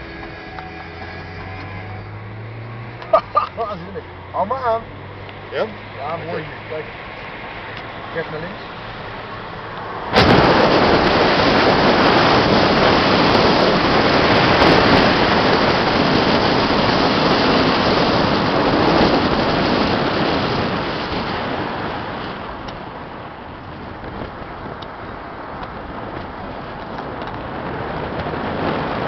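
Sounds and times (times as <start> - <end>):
wind rushing over microphone: 6.1 - 29.0.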